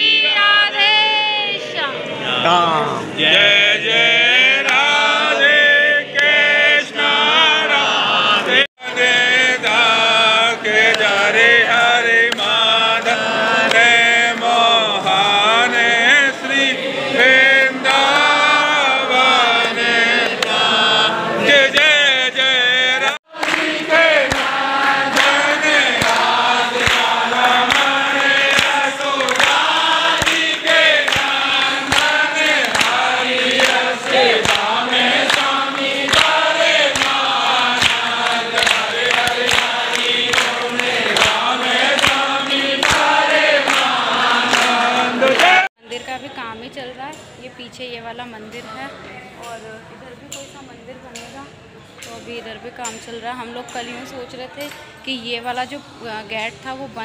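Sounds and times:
crowd singing a devotional hymn: 0.0s - 45.7s
hand-clapping keeping time: 4.4s - 7.1s, 8.4s - 16.3s, 17.2s - 20.9s, 21.5s - 45.7s.

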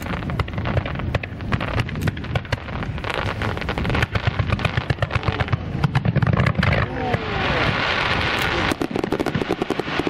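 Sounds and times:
fireworks pops and bangs: 0.0s - 10.0s.

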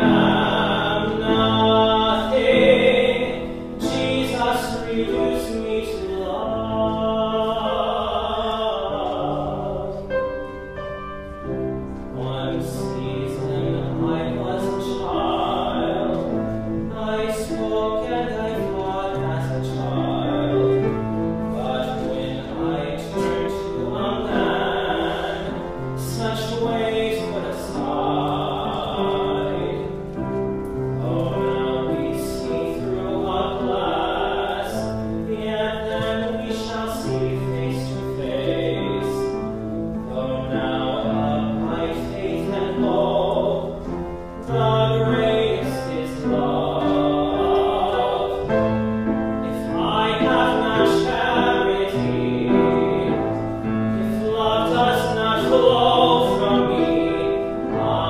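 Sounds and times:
man singing a solo song: 0.0s - 10.6s, 11.9s - 58.0s
piano accompaniment: 0.0s - 58.0s.

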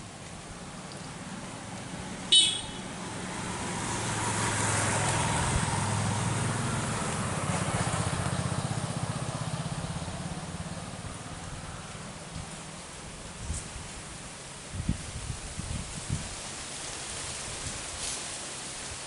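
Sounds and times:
vehicle engine passing by: 0.6s - 13.0s.

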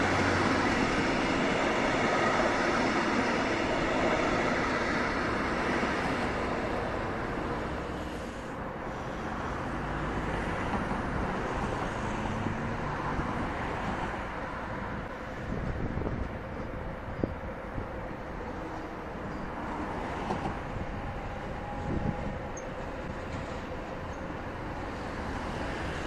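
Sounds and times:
distant train rumble: 0.0s - 26.0s
train coaches rolling past: 0.0s - 26.0s.

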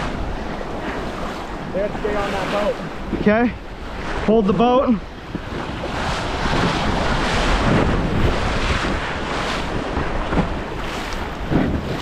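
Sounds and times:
river rushing in whitewater: 0.0s - 5.0s
wind buffeting microphone: 0.0s - 12.0s.

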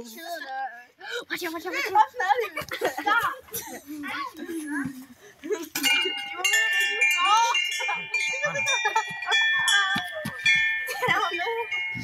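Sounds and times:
ringing chime tones: 5.8s - 12.0s.

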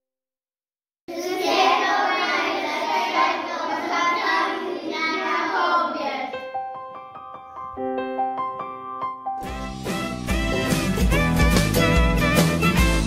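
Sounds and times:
children singing together: 1.1s - 6.4s.

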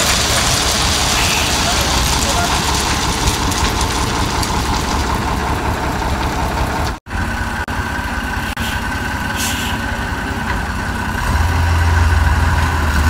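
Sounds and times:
truck diesel engine idling: 0.0s - 13.0s.

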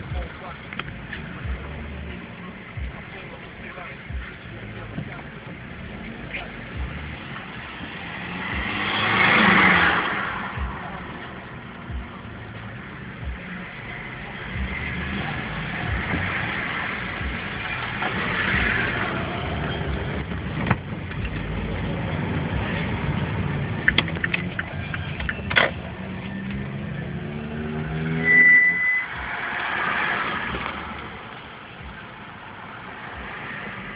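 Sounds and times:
street traffic: 0.0s - 33.9s
vehicle accelerating: 0.0s - 33.9s
short high beep: 28.1s - 29.3s.

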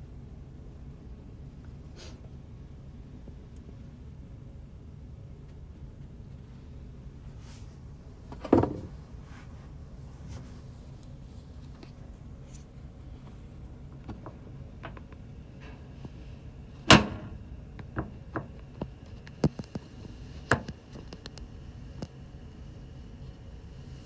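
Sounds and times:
ship engine hum: 0.0s - 24.0s.

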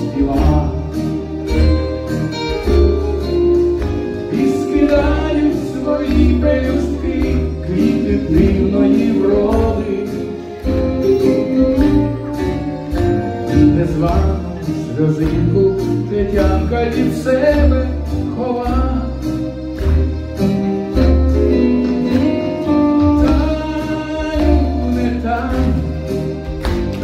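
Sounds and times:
person singing: 0.0s - 1.3s, 4.1s - 11.9s, 21.4s - 26.2s
band accompaniment: 0.0s - 27.0s
bass line: 0.0s - 27.0s.

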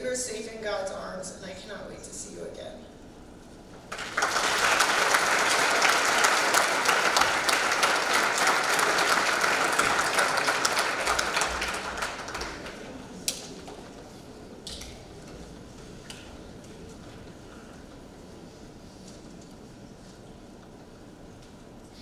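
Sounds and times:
large audience applauding: 3.9s - 13.9s.

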